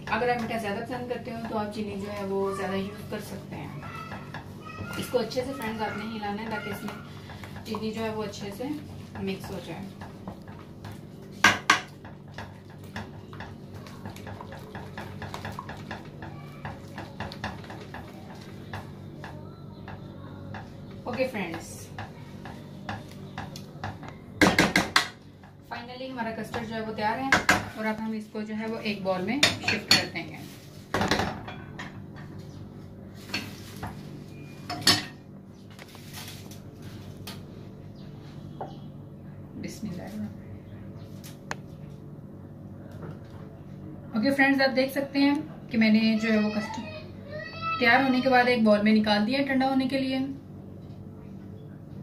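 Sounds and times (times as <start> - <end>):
knocks on pot: 24.4 - 25.2.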